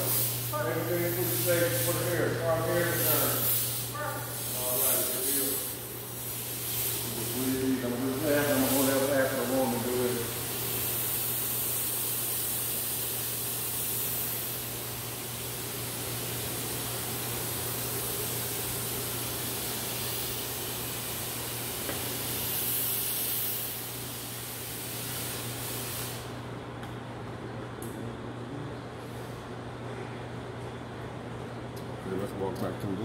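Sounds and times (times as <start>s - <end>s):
fogging machine spraying hiss: 0.0s - 26.4s.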